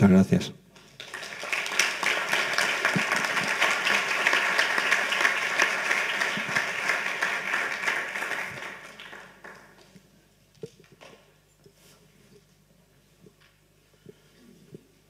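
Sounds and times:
audience applauding: 0:00.8 - 0:10.0.

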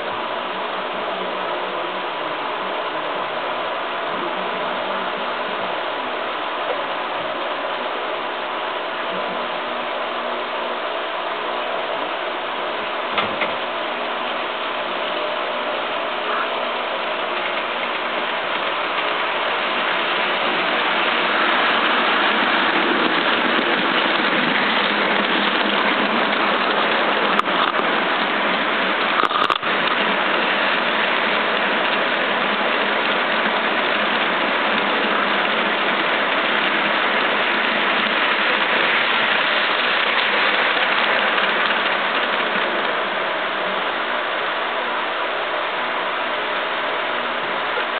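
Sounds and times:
model train wheels rattling: 0:17.2 - 0:43.2.

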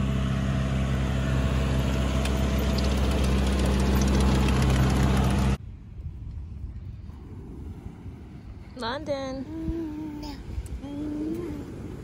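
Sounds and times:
engine idling: 0:00.0 - 0:05.6.

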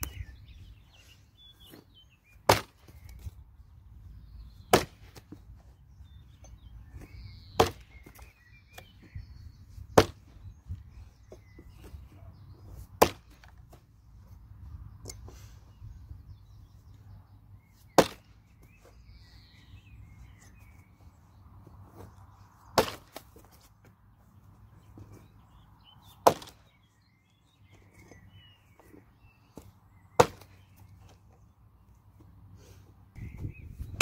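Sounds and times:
axe chopping into log: 0:02.4 - 0:03.0, 0:04.6 - 0:05.3, 0:07.6 - 0:08.1, 0:09.9 - 0:10.3, 0:13.0 - 0:13.6, 0:17.9 - 0:18.3, 0:22.7 - 0:23.3, 0:26.2 - 0:26.6, 0:30.2 - 0:30.6.

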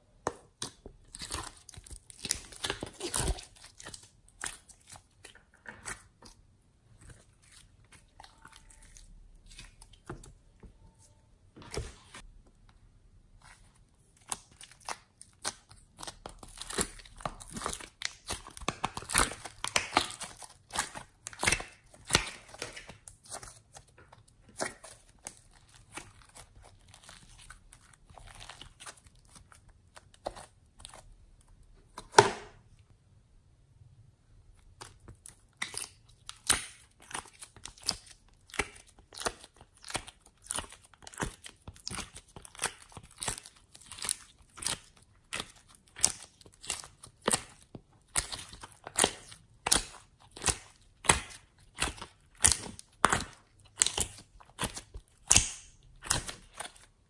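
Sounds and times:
slime crackling pops: 0:54.6 - 0:56.3.

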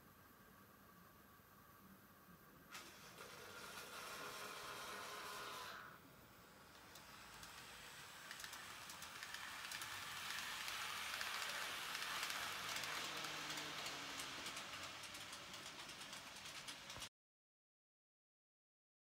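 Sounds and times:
model train running past: 0:02.7 - 0:17.1
light clicking from track: 0:06.7 - 0:17.1.

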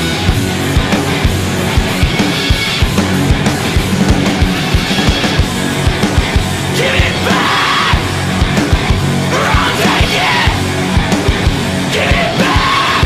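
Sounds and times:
fast drum beat: 0:00.0 - 0:13.0
heavy rock music: 0:00.0 - 0:13.0
shouted vocals: 0:06.6 - 0:08.3, 0:09.2 - 0:10.8, 0:11.8 - 0:13.0.

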